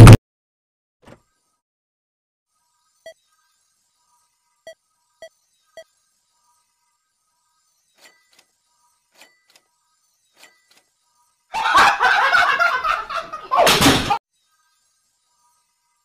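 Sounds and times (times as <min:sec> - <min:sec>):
man screaming and laughing: 0:11.6 - 0:13.9
crash of man falling: 0:13.5 - 0:14.2.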